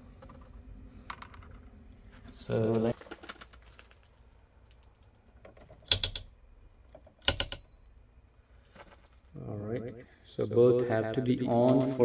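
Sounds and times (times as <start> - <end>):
circuit breakers snapping on: 7.2 - 7.7.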